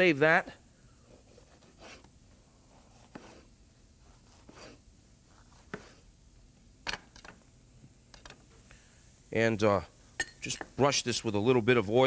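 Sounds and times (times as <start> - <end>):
knife slicing pepper: 2.8 - 6.1.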